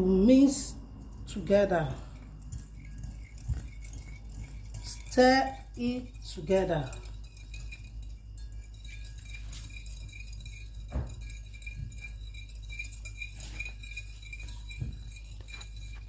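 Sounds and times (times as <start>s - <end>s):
spoon clinking against china bowl: 0.0s - 16.0s
spoon knocking against bowl: 6.8s - 16.0s.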